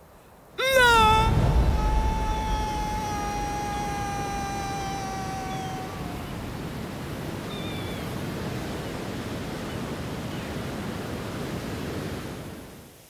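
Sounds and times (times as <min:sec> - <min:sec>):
sea surf: 0:00.0 - 0:13.0
faint high call: 0:00.6 - 0:08.0
wind rushing: 0:00.6 - 0:08.5.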